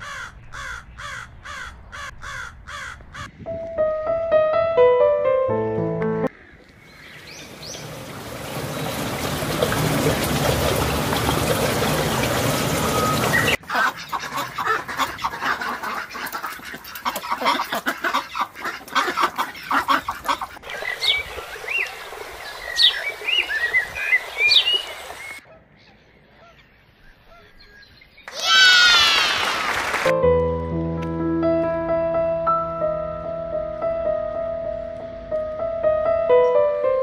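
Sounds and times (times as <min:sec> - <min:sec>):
ducks quacking: 0:10.6 - 0:21.7.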